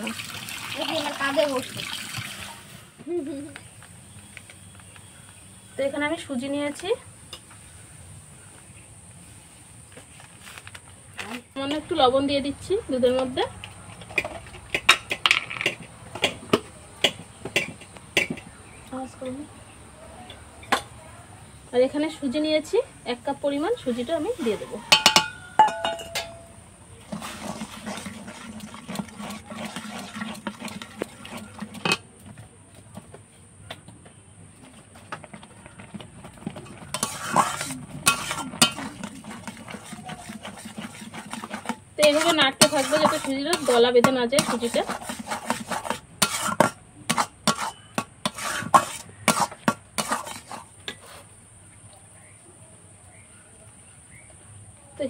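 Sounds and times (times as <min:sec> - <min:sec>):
semolina stirred in pan: 0:11.2 - 0:52.0
metal utensil clinking on pan: 0:24.9 - 0:26.6, 0:36.7 - 0:40.6.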